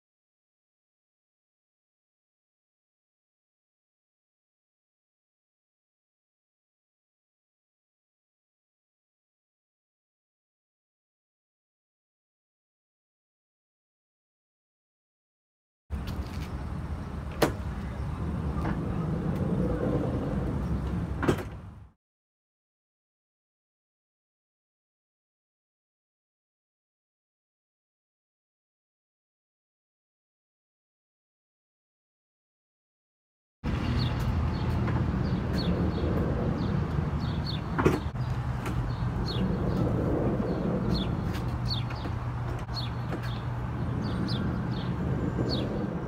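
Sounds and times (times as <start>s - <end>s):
cargo slide rumbling on rollers: 16.2s - 21.8s, 33.7s - 46.0s
small birds chirping: 33.8s - 46.0s.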